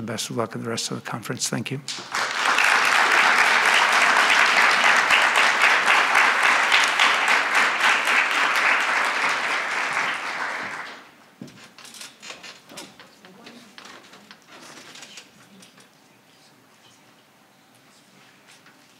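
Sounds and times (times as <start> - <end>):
audience applauding: 1.9 - 11.1.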